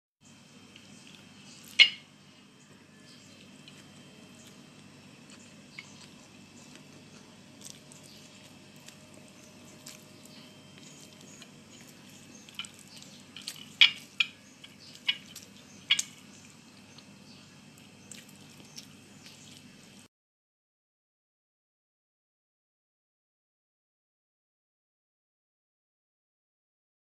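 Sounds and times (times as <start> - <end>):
low steady hum: 0.2 - 20.1
wet eating smacks: 5.2 - 17.1, 17.8 - 19.7.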